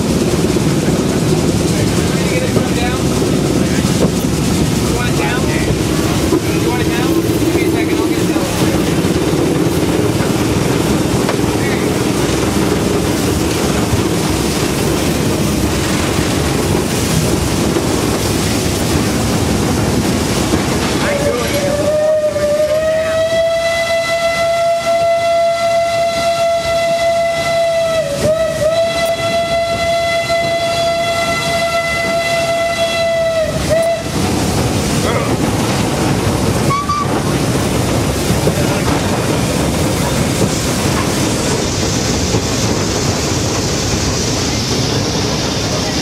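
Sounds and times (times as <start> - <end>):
rumble of cog train running: 0.0 - 46.0
steam locomotive whistle: 21.2 - 34.2, 36.6 - 37.3.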